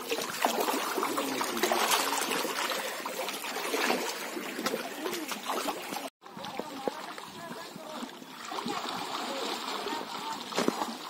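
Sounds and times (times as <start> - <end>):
water splashing and lapping: 0.0 - 11.0.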